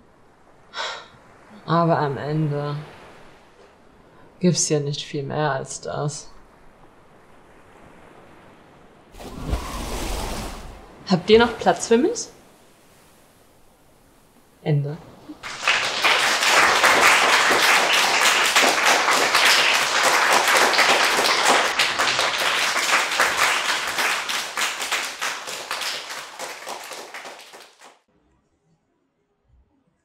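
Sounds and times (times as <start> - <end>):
crowd applauding: 15.4 - 28.0.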